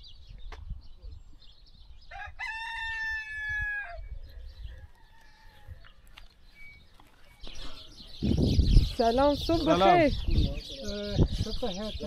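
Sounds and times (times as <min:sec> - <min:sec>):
rooster crowing: 0:02.1 - 0:04.1, 0:04.8 - 0:05.9.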